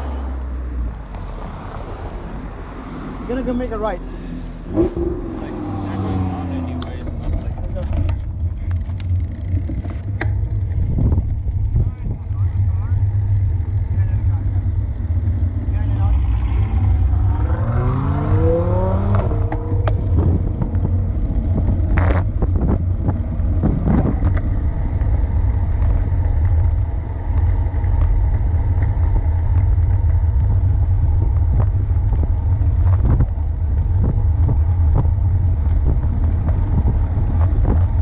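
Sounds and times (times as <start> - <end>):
tyres rumbling on asphalt: 0.0 - 38.0
wind rushing over microphone: 10.4 - 12.5, 15.0 - 38.0
rising tone: 16.1 - 22.7.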